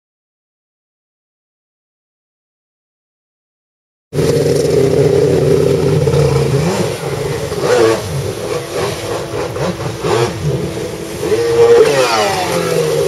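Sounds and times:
jet ski engine revving: 0:04.2 - 0:13.0
water spray rushing: 0:04.2 - 0:13.0.

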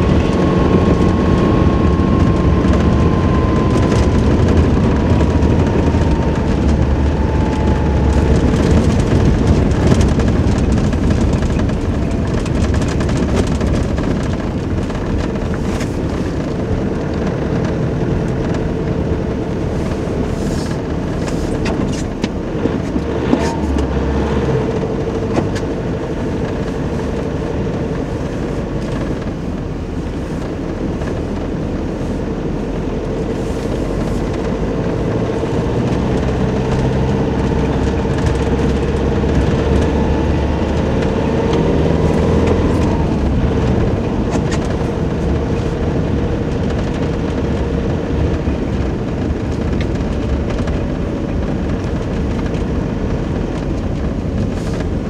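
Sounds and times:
engine rumble: 0:00.0 - 0:55.0
whine: 0:00.0 - 0:55.0
tyre noise on snow: 0:53.4 - 0:55.0.

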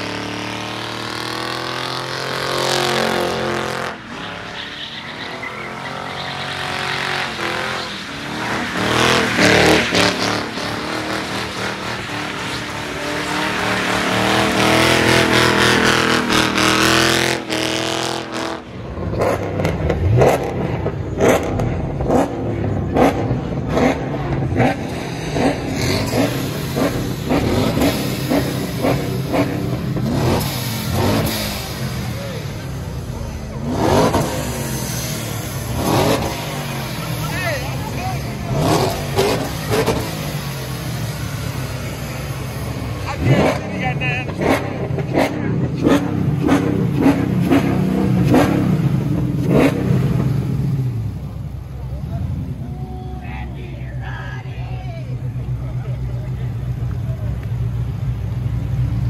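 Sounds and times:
car engine revving during burnout: 0:00.0 - 0:52.6
engine being blipped: 0:00.0 - 0:54.0.

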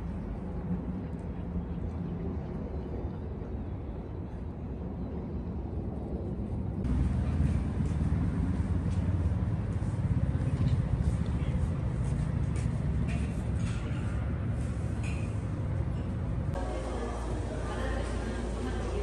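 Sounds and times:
city ambience rumble: 0:00.0 - 0:19.0.

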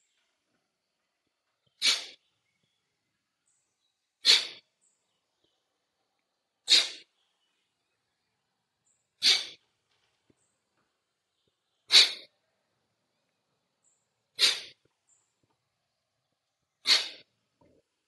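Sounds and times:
forceful nasal exhalations: 0:01.8 - 0:02.2, 0:04.2 - 0:04.7, 0:06.6 - 0:07.1, 0:09.2 - 0:09.6, 0:11.9 - 0:12.3, 0:14.4 - 0:14.8, 0:16.8 - 0:17.3.

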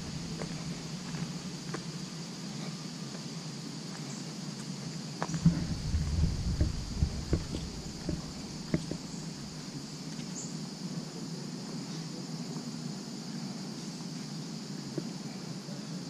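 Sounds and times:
insect chorus: 0:00.0 - 0:16.0
soft low background rumble: 0:05.3 - 0:10.0.

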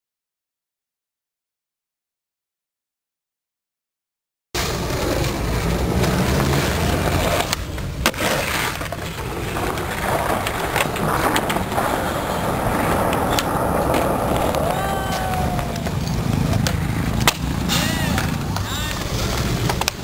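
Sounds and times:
skateboard clacking on ground: 0:04.6 - 0:20.0
skateboard wheels rolling on pavement: 0:04.6 - 0:20.0.

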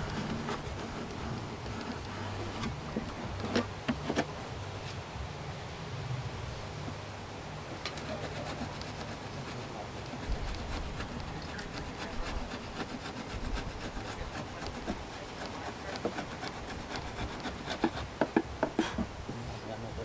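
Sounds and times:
hive tool scraping wood: 0:00.0 - 0:04.4, 0:07.8 - 0:19.2.

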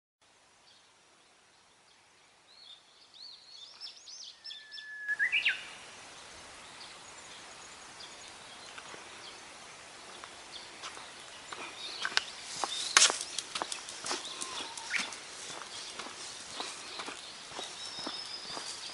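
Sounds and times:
open-air hiss: 0:00.2 - 0:18.9
small birds chirping: 0:00.6 - 0:18.9
footsteps on a paved path: 0:08.6 - 0:09.4, 0:10.0 - 0:18.9.

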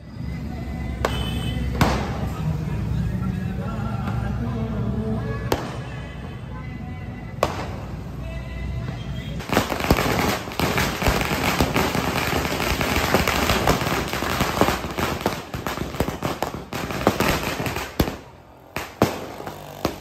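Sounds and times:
firecrackers crackling: 0:01.0 - 0:02.5, 0:05.5 - 0:06.3, 0:07.3 - 0:08.2, 0:08.8 - 0:20.0.

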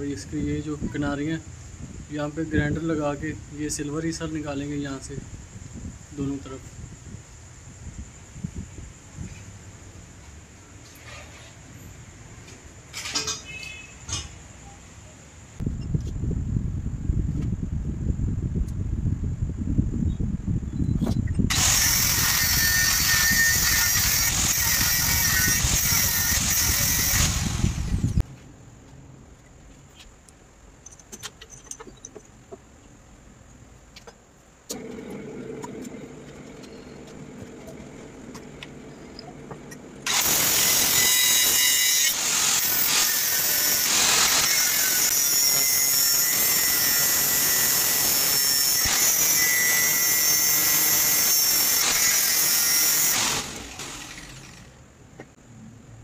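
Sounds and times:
angle grinder grinding steel: 0:21.5 - 0:28.2, 0:34.7 - 0:54.7.

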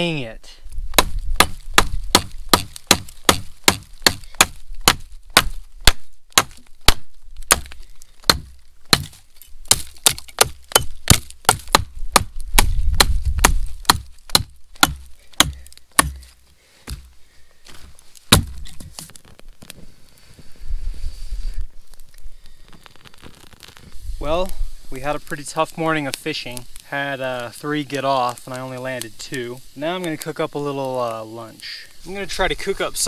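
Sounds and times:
wood being chopped: 0:00.9 - 0:17.1, 0:17.7 - 0:19.2.

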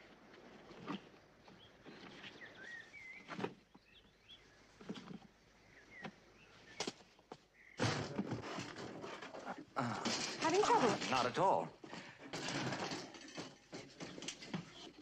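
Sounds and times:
small birds chirping: 0:00.8 - 0:07.8.

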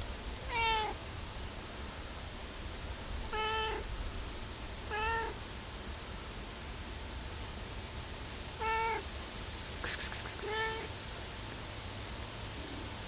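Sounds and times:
cat meowing: 0:00.5 - 0:01.0, 0:03.3 - 0:03.8, 0:04.9 - 0:05.4, 0:08.6 - 0:09.0, 0:10.3 - 0:10.9.

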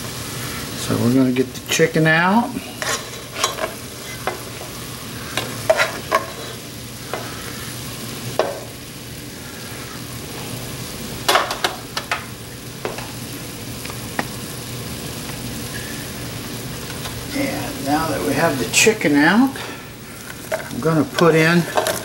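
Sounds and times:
oil sizzling in a pot: 0:00.0 - 0:22.0
spoon knocking and scraping pot: 0:05.4 - 0:06.4.

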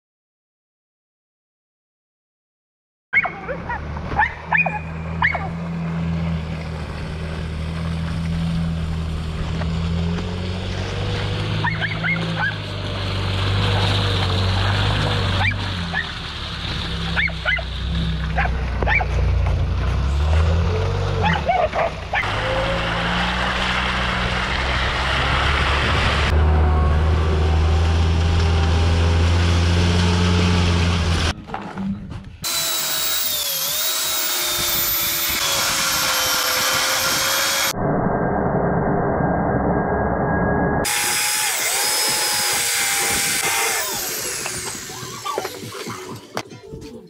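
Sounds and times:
van engine droning: 0:03.4 - 0:37.8, 0:39.6 - 0:47.0
angle grinder cutting steel: 0:32.4 - 0:37.8, 0:40.8 - 0:46.4.

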